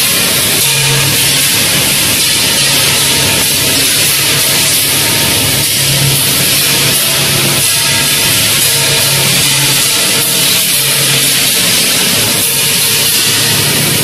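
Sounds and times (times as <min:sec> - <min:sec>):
loud machinery running: 0:00.0 - 0:14.0.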